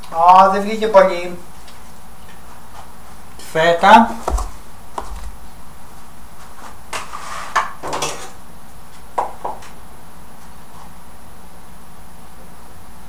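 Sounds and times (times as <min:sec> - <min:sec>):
quick knocks: 0:04.2 - 0:05.4.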